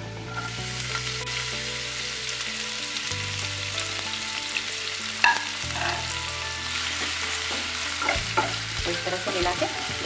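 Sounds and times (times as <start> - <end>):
vegetables sizzling in oil: 0.2 - 10.0.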